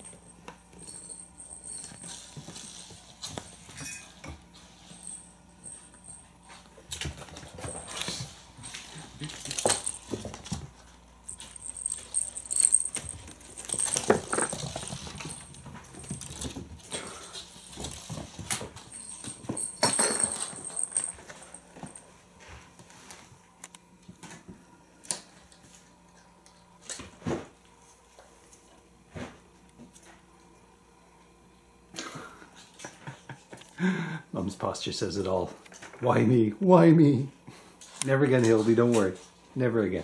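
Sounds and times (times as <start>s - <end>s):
small bell jingling: 0.0s - 4.1s, 11.3s - 16.5s, 18.8s - 22.0s
kittens scrabbling on wooden floor: 6.6s - 22.0s.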